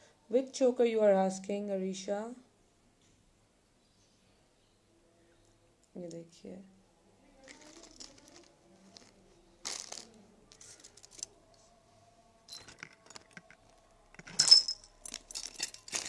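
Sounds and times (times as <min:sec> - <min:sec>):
metal jewelry and beads clinking: 0:07.4 - 0:11.7, 0:12.4 - 0:16.0.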